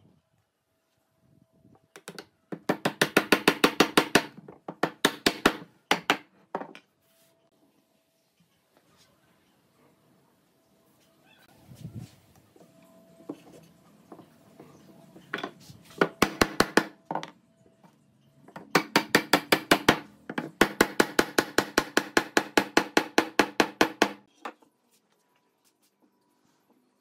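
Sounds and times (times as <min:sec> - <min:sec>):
hammer tapping wood: 0:02.0 - 0:06.7, 0:16.0 - 0:17.2.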